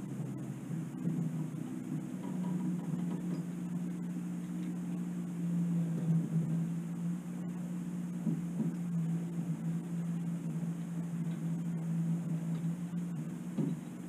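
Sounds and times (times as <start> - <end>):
boat motor humming: 0.0 - 14.0
faint knocks: 13.5 - 14.0.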